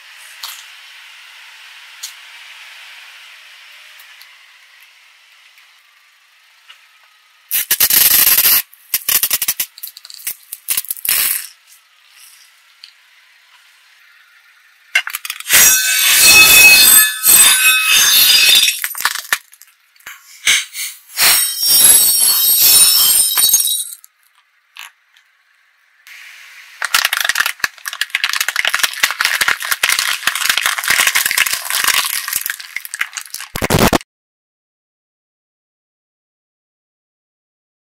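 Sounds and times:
plastic bottle crushed under tyre: 18.7 - 19.7, 26.8 - 34.0
liquid squirting in spluttering spurts: 26.8 - 33.8.

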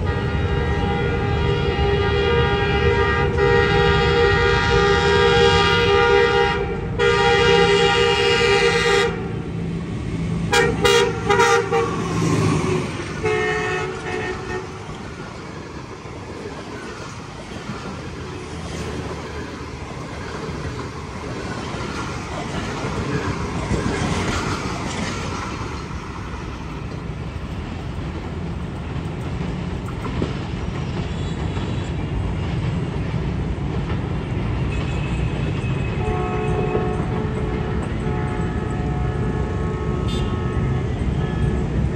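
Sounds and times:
train wheels clattering on rails: 10.5 - 39.9.

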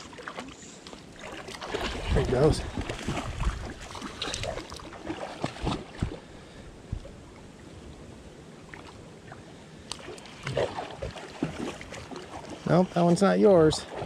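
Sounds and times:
creek water running and lapping: 0.0 - 14.0.

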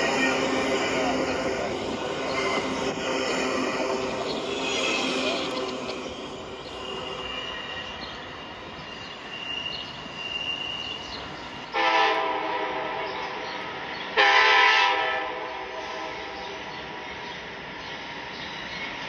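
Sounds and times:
train horn blasts: 11.7 - 13.4, 14.1 - 16.4.

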